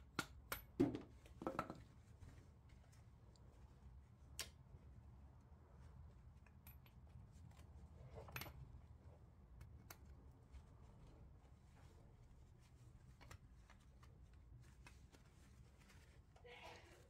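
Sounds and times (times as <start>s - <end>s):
faint metal clicks and taps: 6.3s - 7.6s.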